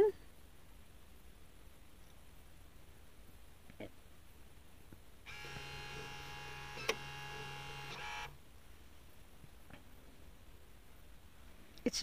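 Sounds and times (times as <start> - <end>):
door lock motor whine: 5.3 - 8.4.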